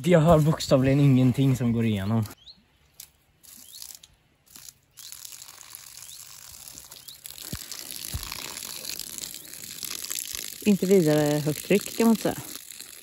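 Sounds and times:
water stream splashing on grass: 2.9s - 13.0s.

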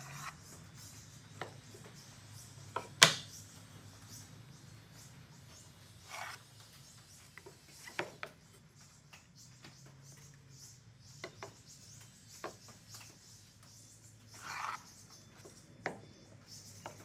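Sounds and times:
board scraping: 6.0s - 6.5s, 14.4s - 14.9s.

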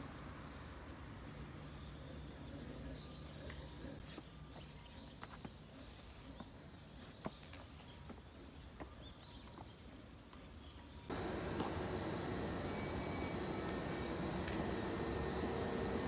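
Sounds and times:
train platform noise: 11.1s - 16.0s.

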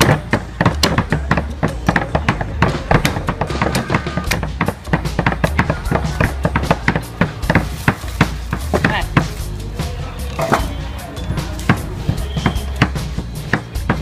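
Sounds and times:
cleaver chopping on wooden block: 0.0s - 9.4s
music with low bass: 0.0s - 14.0s.

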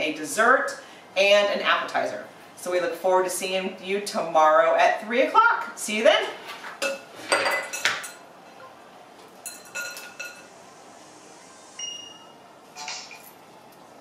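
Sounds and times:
dishes and glassware clinking: 6.8s - 8.7s, 9.4s - 10.5s.

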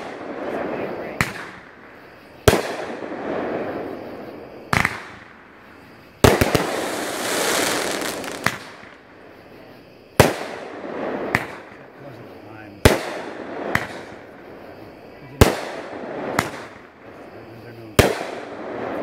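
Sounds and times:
firework bangs: 0.0s - 9.4s, 10.2s - 19.0s
firework hissing rush: 6.2s - 8.9s.

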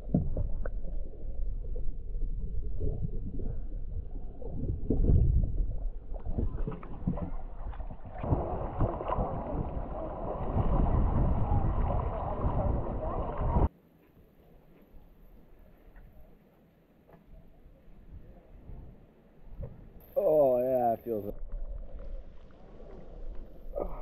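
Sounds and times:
muffled underwater rumble: 0.0s - 13.7s, 17.3s - 24.0s
water splashing and lapping: 0.0s - 13.7s, 21.4s - 24.0s.

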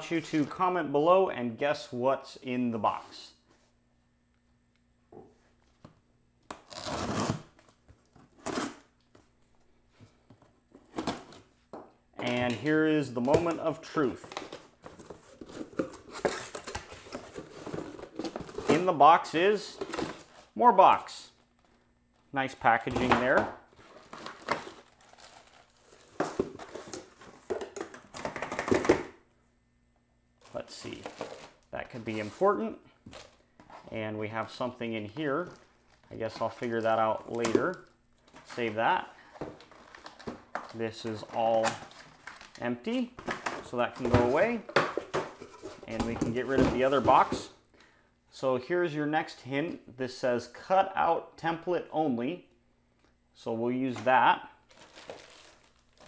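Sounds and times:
packing tape tearing: 6.5s - 7.5s
cardboard and plastic rustling: 9.9s - 18.9s, 19.7s - 20.6s, 21.5s - 29.1s, 30.4s - 34.0s, 34.9s - 47.5s, 54.7s - 56.0s.

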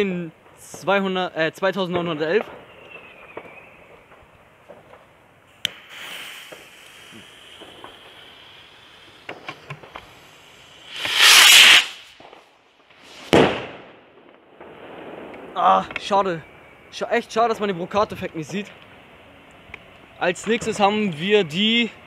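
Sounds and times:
fuse hissing and crackling: 4.8s - 13.3s
rocket whoosh: 5.6s - 15.6s
firework shell bang: 10.9s - 12.4s, 13.3s - 14.0s.

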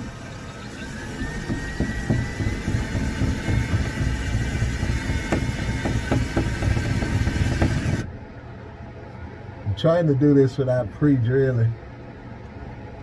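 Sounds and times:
cordless drill motor whining: 0.0s - 8.1s.

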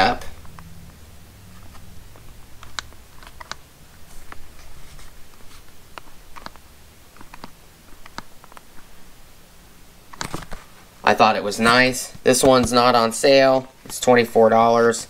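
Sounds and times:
plastic blister pack crackling: 1.5s - 9.0s.

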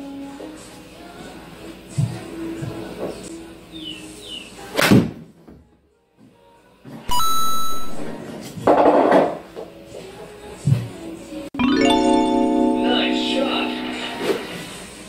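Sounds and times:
faint background music: 0.0s - 15.0s
steady electronic tone: 7.1s - 8.2s.

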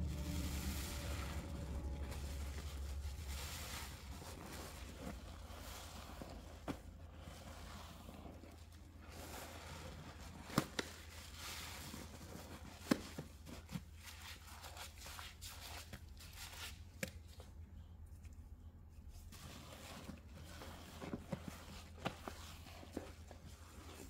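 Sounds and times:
low hum: 0.0s - 6.4s
wet sponge squelching: 0.0s - 17.6s, 18.8s - 24.0s.

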